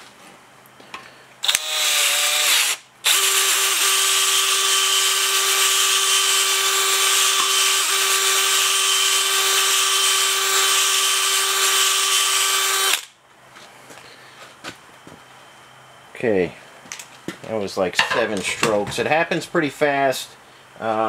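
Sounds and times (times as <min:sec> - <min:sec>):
electric drill whining: 0:01.4 - 0:13.1.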